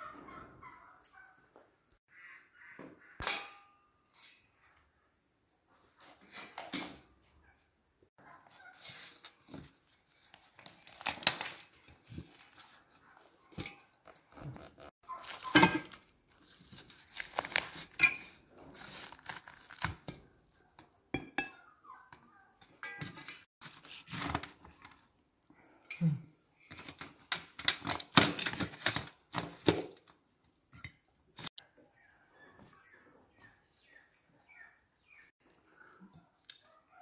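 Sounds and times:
crisp skin tearing and crackling: 0:10.2 - 0:11.8, 0:16.5 - 0:18.0, 0:18.8 - 0:20.1.

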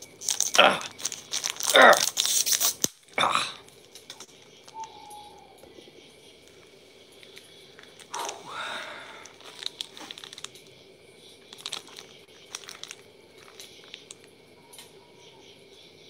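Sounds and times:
plastic wrapper crinkling and tearing: 0:00.0 - 0:05.0, 0:09.2 - 0:10.8, 0:11.4 - 0:14.3.

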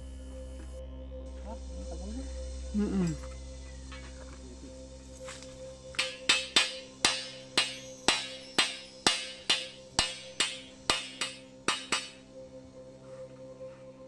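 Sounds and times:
hammer clanging on metal pipe: 0:06.0 - 0:12.2.

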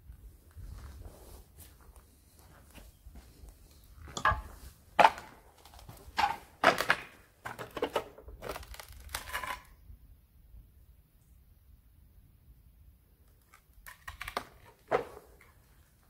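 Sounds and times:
footsteps crunching on debris: 0:00.5 - 0:08.6.

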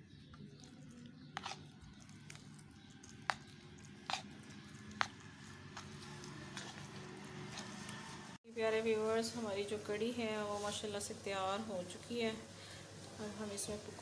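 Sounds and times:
spoon squelching in batter: 0:00.0 - 0:08.3.

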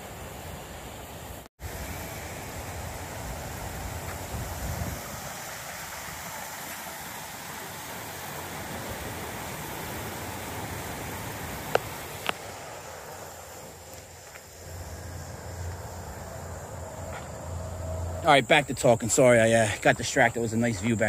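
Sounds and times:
wind rumbling on microphone: 0:02.6 - 0:06.5.

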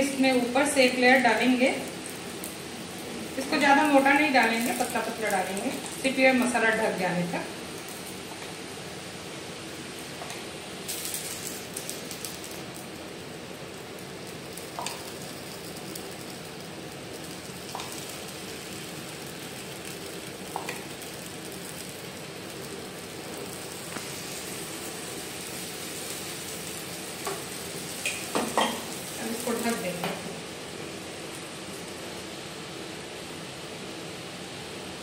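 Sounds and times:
batter sizzling in frying pan: 0:00.0 - 0:35.0.

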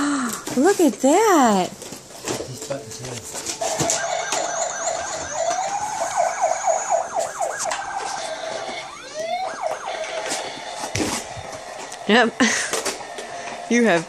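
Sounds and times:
toy electronic siren wailing: 0:03.6 - 0:12.3.

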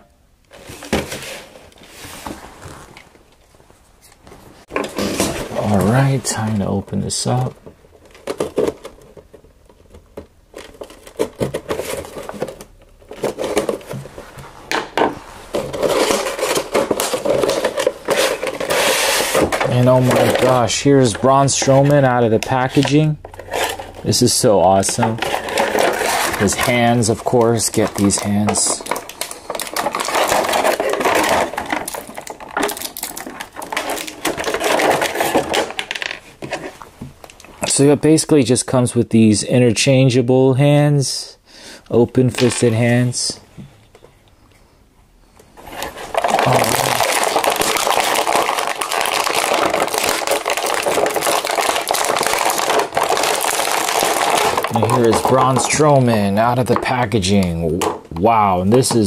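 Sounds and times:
plastic tray rustling scrape: 0:00.5 - 0:03.3, 0:04.3 - 0:06.6, 0:10.6 - 0:20.6, 0:23.3 - 0:24.1, 0:24.8 - 0:37.0, 0:45.6 - 0:55.8
plastic bag crinkling: 0:00.6 - 0:35.9, 0:45.6 - 0:57.4.

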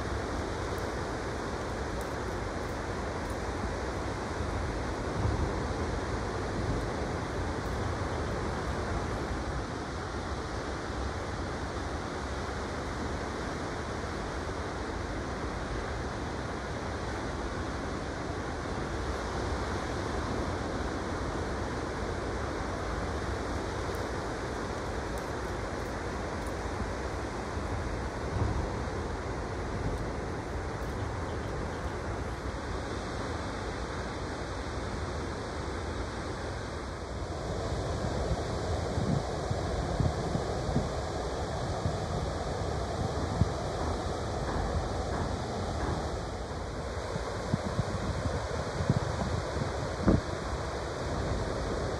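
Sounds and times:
wind buffeting microphone: 0:23.2 - 0:33.2, 0:37.3 - 0:51.9.

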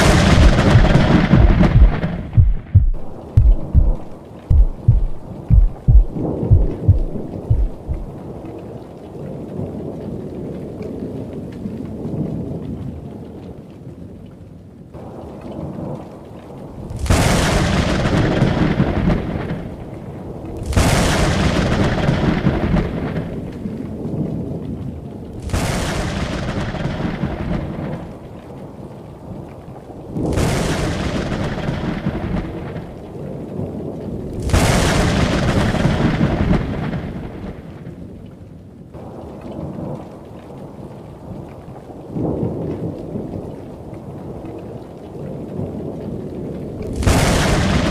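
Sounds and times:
thunder claps: 0:00.0 - 0:08.4, 0:16.9 - 0:19.9, 0:20.6 - 0:23.6, 0:25.4 - 0:28.2, 0:30.2 - 0:33.0, 0:34.4 - 0:38.0, 0:46.9 - 0:47.9
rain hissing: 0:00.0 - 0:08.5.

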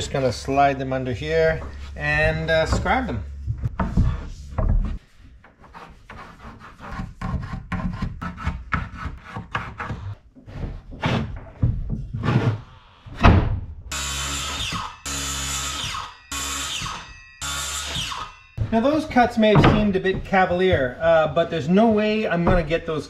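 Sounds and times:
power tool running: 0:13.9 - 0:18.6
sharp wooden knocks: 0:17.9 - 0:20.9.

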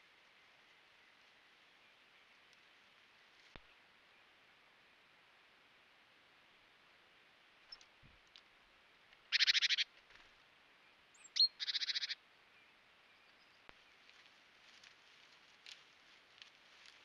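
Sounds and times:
high bird chirp: 0:09.3 - 0:09.8, 0:11.2 - 0:12.2.

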